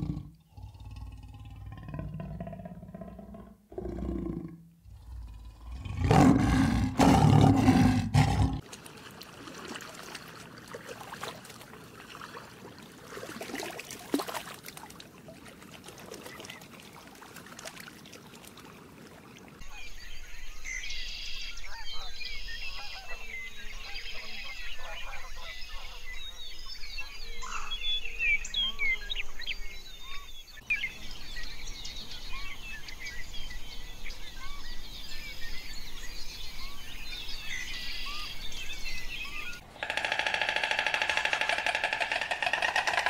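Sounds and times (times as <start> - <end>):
big cat roaring: 0.0 - 8.6
high bird calls: 37.4 - 43.0.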